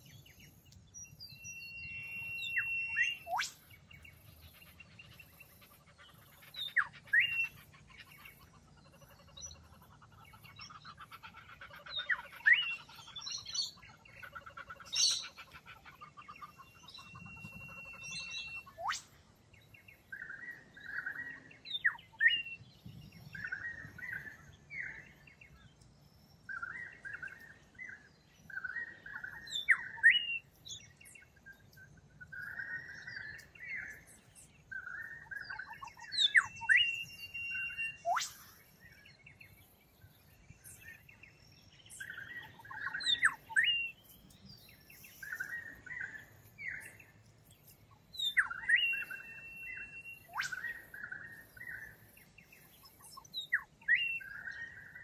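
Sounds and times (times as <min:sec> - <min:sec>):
birds singing and calling: 0:00.0 - 0:55.0.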